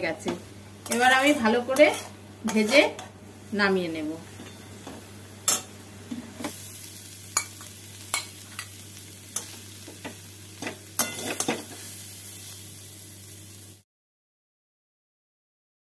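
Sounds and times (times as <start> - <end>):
food sizzling: 0.0 - 13.8
metal spatula scraping a pan: 0.8 - 3.1, 10.6 - 12.0.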